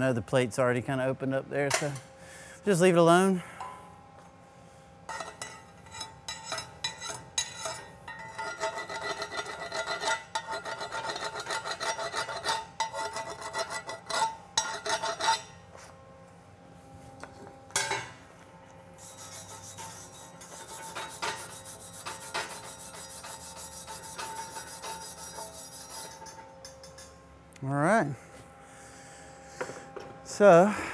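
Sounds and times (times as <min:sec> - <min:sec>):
scraping slag off steel plate: 0:19.0 - 0:26.4.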